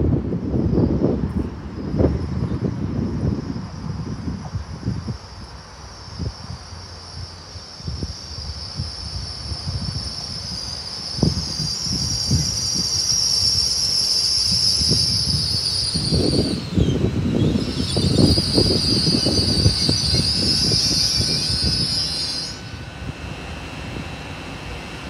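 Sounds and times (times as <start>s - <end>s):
train high-pitched whine: 0.0s - 25.0s
train rumble: 0.0s - 25.0s.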